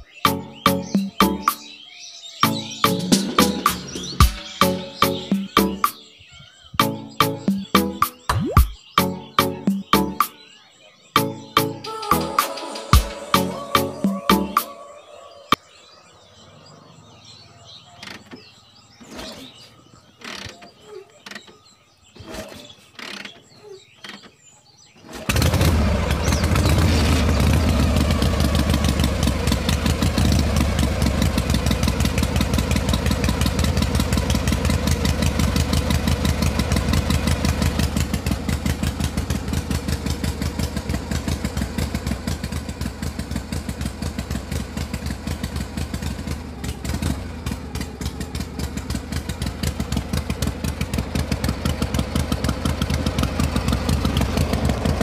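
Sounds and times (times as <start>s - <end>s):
small engine running: 25.0s - 55.0s.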